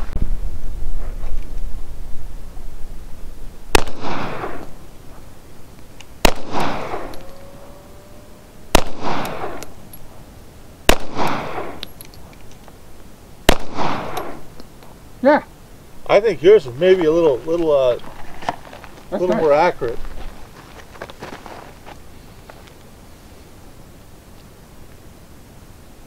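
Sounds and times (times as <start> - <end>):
pistol shots with echo: 3.7 - 4.7, 6.2 - 7.7, 8.7 - 9.8, 10.9 - 11.9, 13.5 - 14.5.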